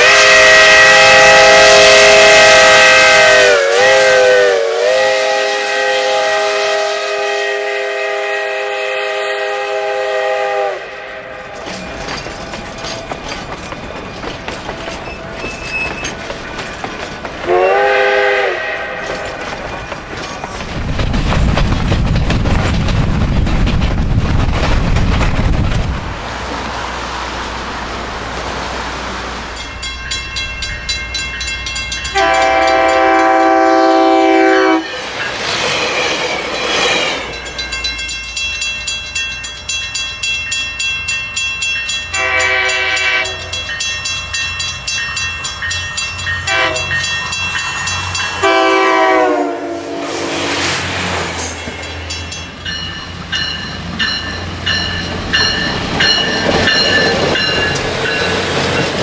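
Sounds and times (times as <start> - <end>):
train air horn: 0.0 - 11.5, 17.4 - 19.4, 32.1 - 35.0, 42.1 - 43.6, 46.5 - 47.0, 48.3 - 50.6
train wheels clicking on rails: 10.6 - 59.0.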